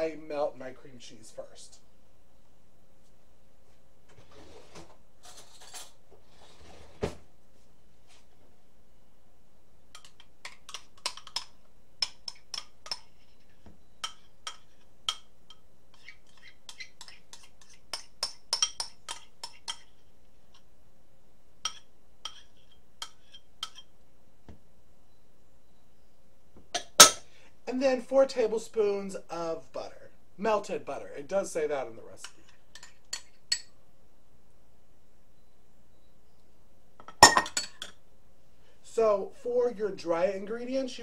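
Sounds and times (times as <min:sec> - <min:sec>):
metal spoon clinking on bowls: 0:10.0 - 0:13.3, 0:14.0 - 0:19.9, 0:21.6 - 0:23.9, 0:32.2 - 0:33.8.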